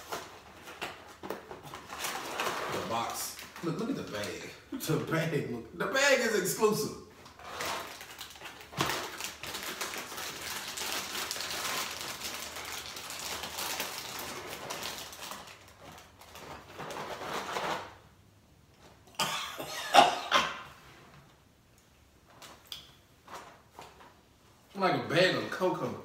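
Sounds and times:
plastic bag crinkling: 0.0s - 4.7s, 7.2s - 18.0s.

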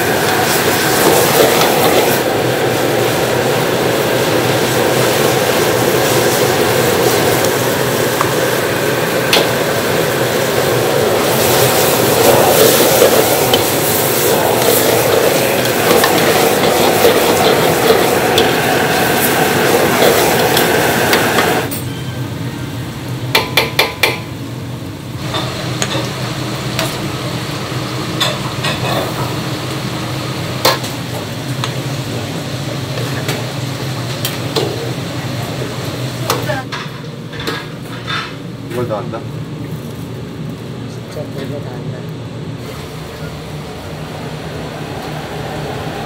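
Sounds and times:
onions sizzling in a wok: 0.0s - 41.4s
low kitchen hum: 0.0s - 46.0s
ladle stirring and scraping: 11.3s - 21.6s.

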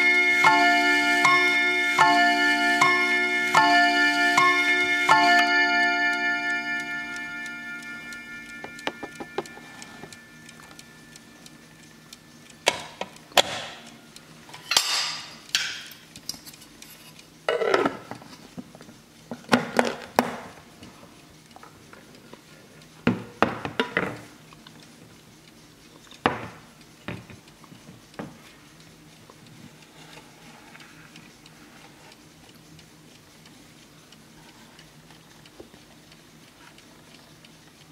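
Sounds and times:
clock chime rods ringing: 0.0s - 14.2s
clock ticking: 0.0s - 14.5s, 20.5s - 37.9s.

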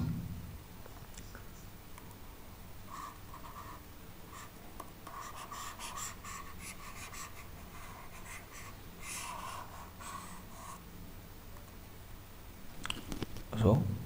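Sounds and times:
stylus scratching on tablet: 2.9s - 10.8s.

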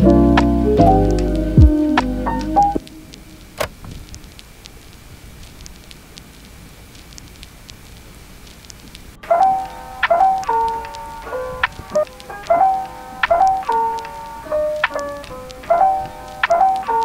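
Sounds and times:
piano music: 0.0s - 3.6s, 9.2s - 17.0s
faint crackle: 2.4s - 17.0s
sharp ticks: 2.8s - 17.0s.

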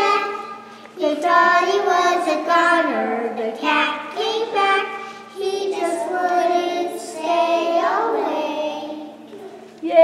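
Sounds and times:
young children singing: 0.0s - 9.6s.

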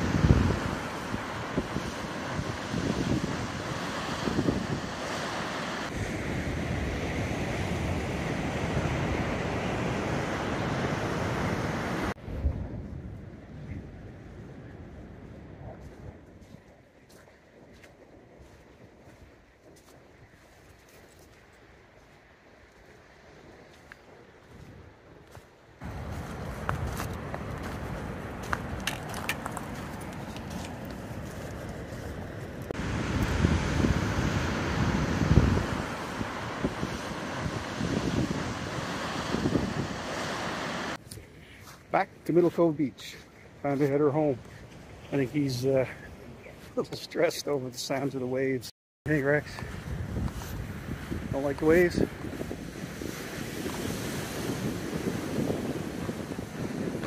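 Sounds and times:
waves breaking on rocky shore: 0.0s - 12.2s, 25.8s - 41.0s, 50.5s - 57.0s
wind buffeting microphone: 0.0s - 20.6s, 22.8s - 41.1s, 49.2s - 57.0s
footsteps and gear clicks: 26.1s - 32.7s.

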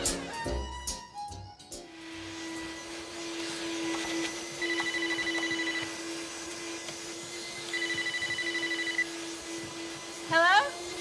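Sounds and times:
handheld vacuum cleaner running: 1.9s - 11.0s
phone ringing electronic trill: 4.6s - 5.9s, 7.7s - 9.1s.

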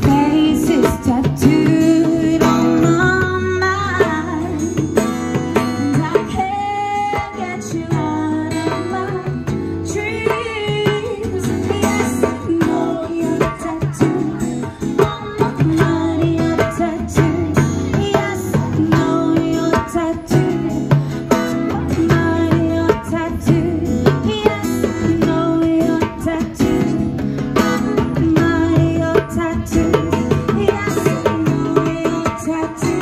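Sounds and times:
acoustic guitar: 0.0s - 33.0s
hand drum strokes: 0.0s - 33.0s
woman singing: 0.0s - 33.0s.

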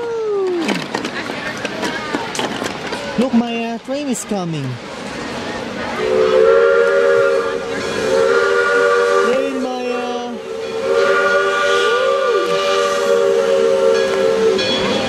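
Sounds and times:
steam locomotive whistle: 6.0s - 15.0s.

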